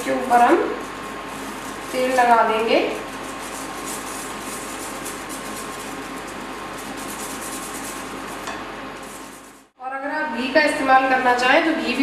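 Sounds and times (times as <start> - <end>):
cooling fan whirring: 0.0 - 12.0
flatbread sizzling on griddle: 0.7 - 9.8.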